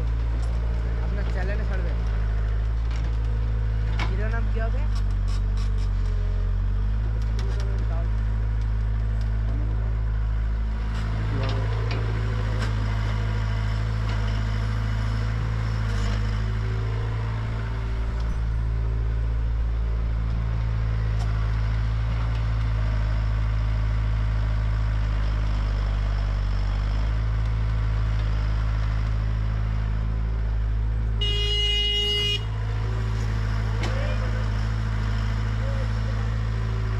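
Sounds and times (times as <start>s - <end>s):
excavator diesel engine running: 0.0s - 36.9s
vehicle horn: 31.2s - 32.6s.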